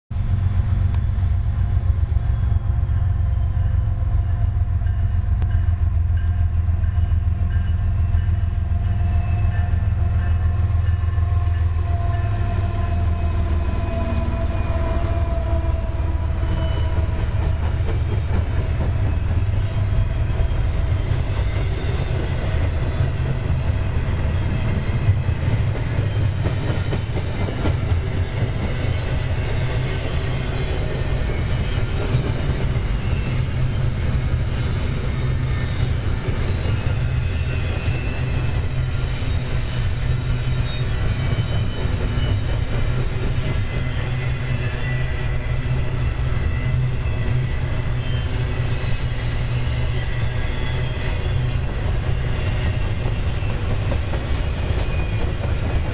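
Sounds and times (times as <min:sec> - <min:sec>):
train cars rumbling on rails: 0:00.1 - 0:55.9
locomotive engine drone: 0:00.2 - 0:55.9.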